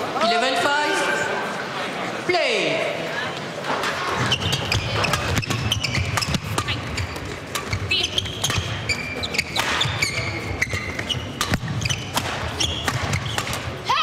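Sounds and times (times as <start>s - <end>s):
shoes squeaking on court: 3.8s - 13.8s
racket hitting shuttlecock: 4.2s - 13.8s.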